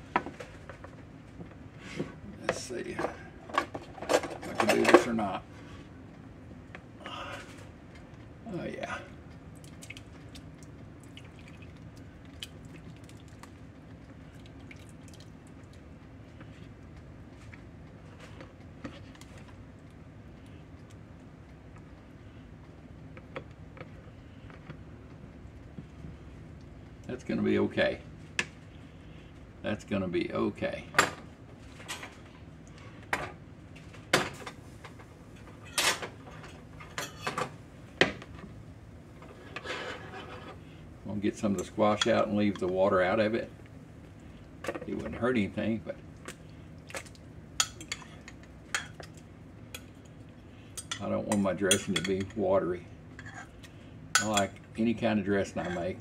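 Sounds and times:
steady low hum: 0.0s - 56.0s
squash squishing and dripping: 9.2s - 17.7s, 46.1s - 49.3s
faint scraping: 39.3s - 40.7s.

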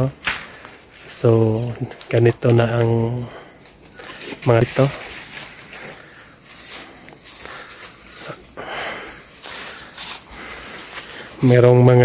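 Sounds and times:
insects shrilling: 0.0s - 12.0s
footsteps through grass: 4.1s - 12.0s.

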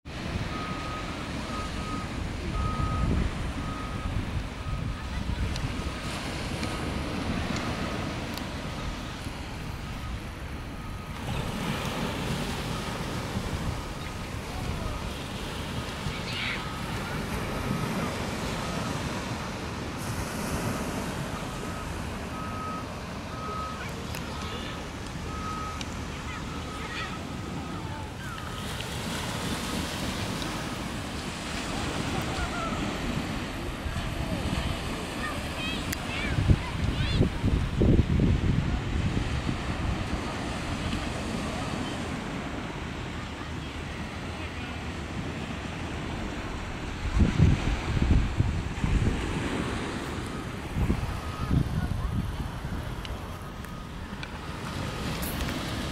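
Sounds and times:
surf washing on beach: 0.0s - 55.9s
wind on microphone: 2.0s - 16.1s, 28.9s - 41.3s, 46.0s - 55.9s.

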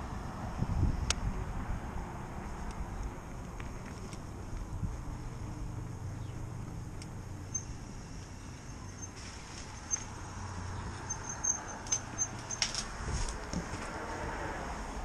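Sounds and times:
bike tyre rumble on concrete: 0.0s - 15.0s
high-pitched brake squeaks: 7.4s - 7.8s, 8.6s - 10.2s, 11.0s - 12.8s.

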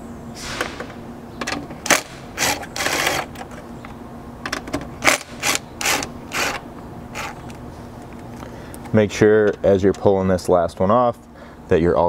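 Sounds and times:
cordless power driver spinning: 1.4s - 8.9s.

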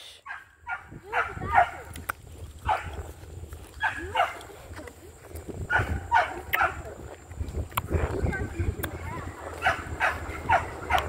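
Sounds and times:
dog yapping in high yelps: 0.2s - 1.8s, 9.6s - 11.0s.

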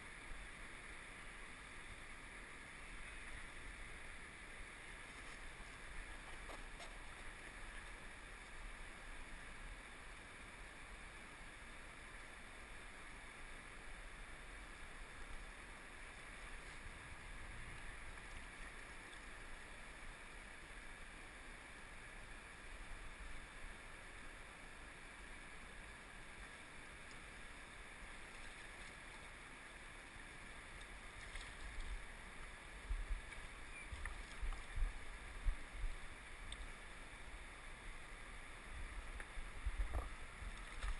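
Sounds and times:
river flowing: 0.0s - 40.9s.

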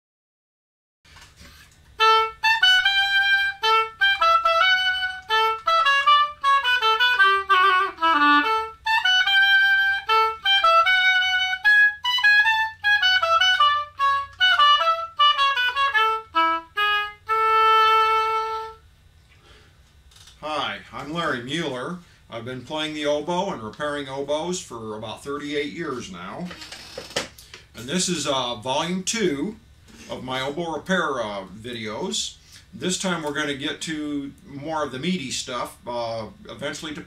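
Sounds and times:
solo oboe melody: 2.0s - 18.9s.

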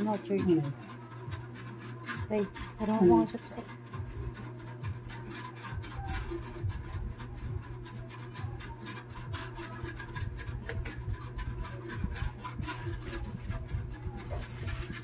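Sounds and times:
steady low hum: 0.0s - 15.0s
plastic wrapping crackling: 11.8s - 15.0s.

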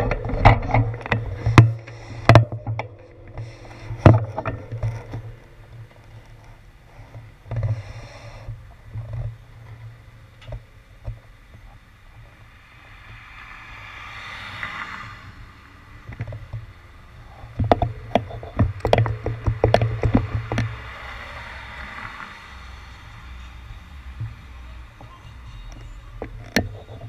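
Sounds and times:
irregular knocks and rattles: 0.0s - 7.9s, 16.0s - 21.0s
car tyre noise passing: 0.0s - 27.0s.

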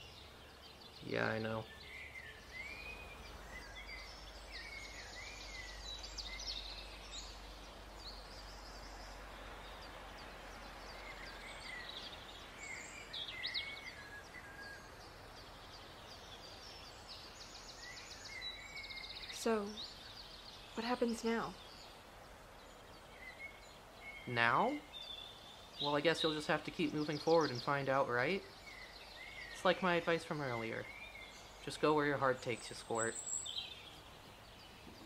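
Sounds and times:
faint steady hiss: 0.0s - 35.0s
small birds chirping and trilling: 0.0s - 35.0s.

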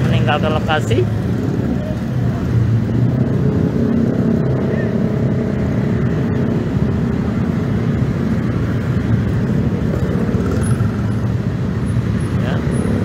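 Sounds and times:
car engine running: 0.0s - 13.0s
motorcycle engine running: 0.0s - 13.0s
road traffic: 0.0s - 13.0s.

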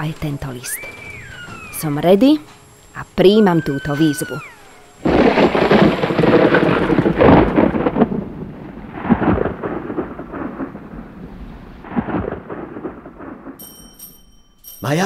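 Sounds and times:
rain-like hiss: 0.0s - 13.6s
thunderclap and rolling thunder: 4.4s - 13.6s.

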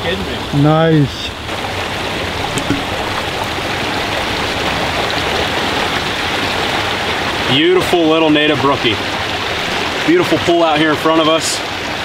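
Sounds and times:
stream rushing over rocks: 1.4s - 12.0s.

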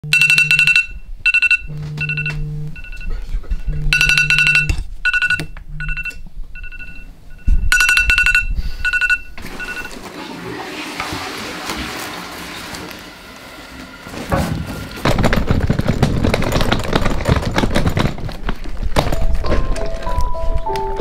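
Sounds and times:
low steady alarm tone: 0.0s - 10.0s
trilling electronic alarm beeps: 0.0s - 10.0s.

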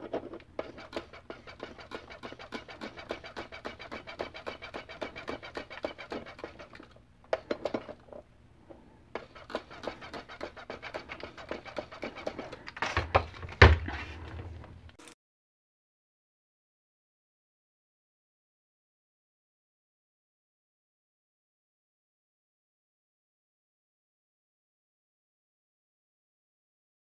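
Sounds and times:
trigger sprayer pumping: 0.6s - 7.8s, 9.1s - 13.1s.

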